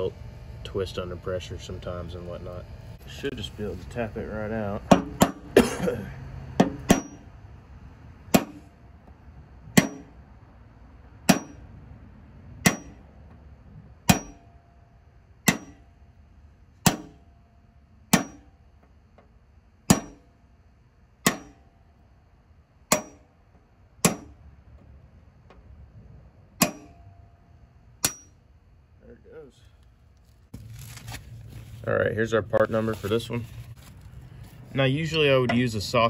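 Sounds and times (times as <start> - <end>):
hammer striking metal punch: 4.8 - 5.7, 6.6 - 7.3, 8.3 - 8.8, 9.7 - 10.2, 11.2 - 11.6, 12.6 - 13.1, 14.0 - 14.8, 15.4 - 16.0, 16.8 - 17.4, 18.1 - 18.6, 19.9 - 20.3, 21.2 - 21.8, 22.9 - 23.4, 24.0 - 24.4, 26.6 - 27.3, 28.0 - 28.4.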